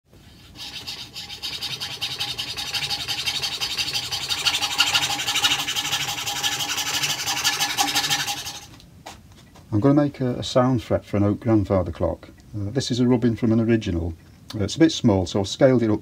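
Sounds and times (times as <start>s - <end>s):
saw blade rasping: 0.4s - 8.7s.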